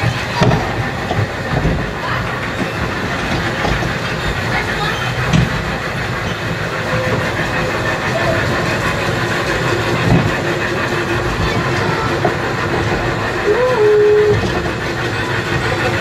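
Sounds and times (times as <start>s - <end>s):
kiddie train rumbling and rattling: 0.0s - 16.0s.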